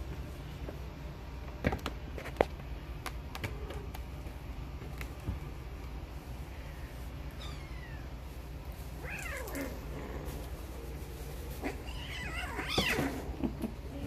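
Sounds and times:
kittens mewing: 9.0s - 10.4s, 11.5s - 14.0s.

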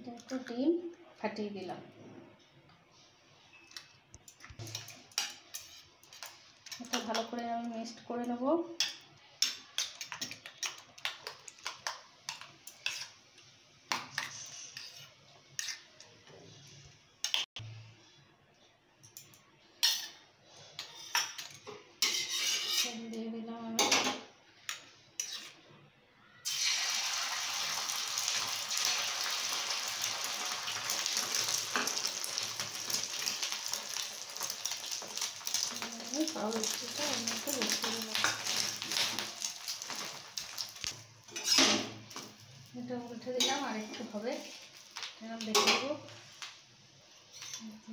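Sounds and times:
egg sizzling on griddle: 26.4s - 45.7s.

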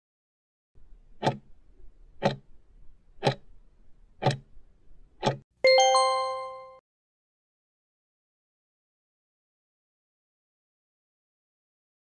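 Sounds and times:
clock ticks: 1.2s - 1.5s, 2.2s - 2.5s, 3.2s - 3.4s, 4.2s - 4.5s, 5.2s - 5.4s.

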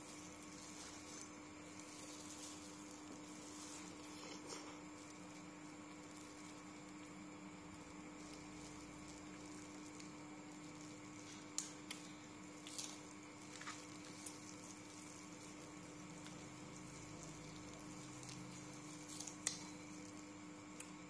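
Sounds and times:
steady faint hum: 0.0s - 21.0s
eating clicks and smacks: 19.3s - 19.8s.

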